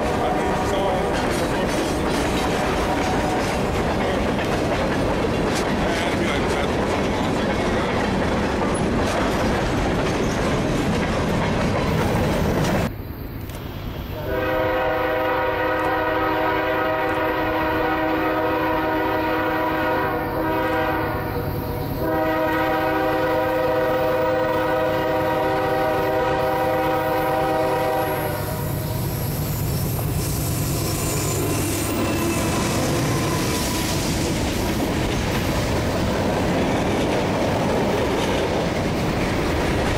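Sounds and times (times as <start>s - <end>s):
train wheels clacking over rail joints: 0.0s - 12.9s, 29.4s - 39.9s
locomotive rumble: 0.0s - 39.9s
locomotive air horn blasts: 14.2s - 21.4s, 22.0s - 28.8s.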